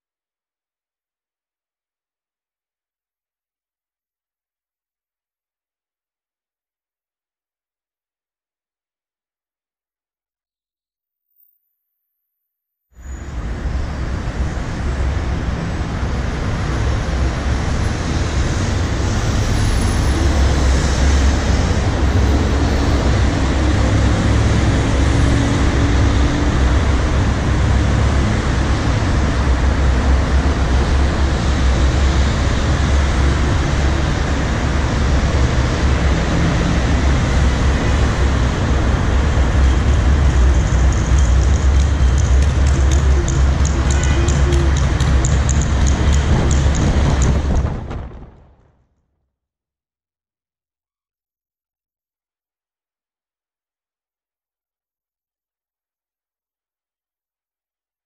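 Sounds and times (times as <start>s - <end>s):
road traffic rumble: 13.0s - 48.2s.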